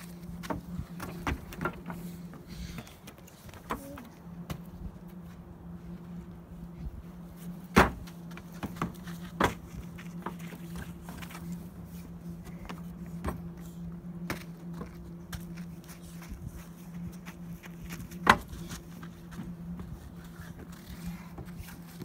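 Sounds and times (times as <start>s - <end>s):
children jumping on wooden ramp: 0.0s - 4.7s, 7.6s - 11.5s
steady low hum: 0.0s - 22.0s.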